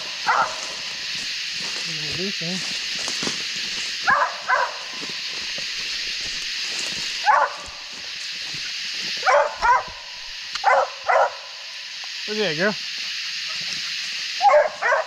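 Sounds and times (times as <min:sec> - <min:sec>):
dog barking: 0:00.2 - 0:00.8, 0:04.0 - 0:05.1, 0:07.2 - 0:07.8, 0:09.2 - 0:11.5, 0:14.4 - 0:15.0.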